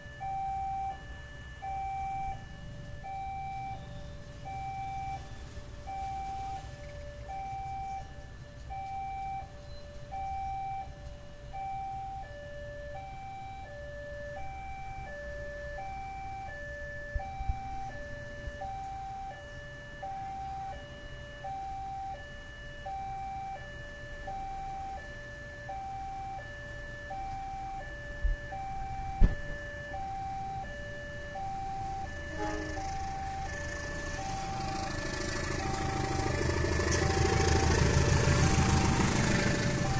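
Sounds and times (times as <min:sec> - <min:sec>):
level crossing alarm ringing: 0:00.0 - 0:39.9
motorcycle engines idling: 0:30.8 - 0:39.9.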